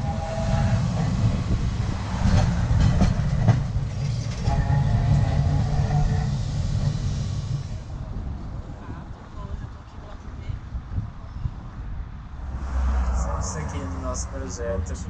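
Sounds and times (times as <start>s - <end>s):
tram wheels clacking: 0.0s - 8.7s
tram rumbling on rails: 0.0s - 15.0s.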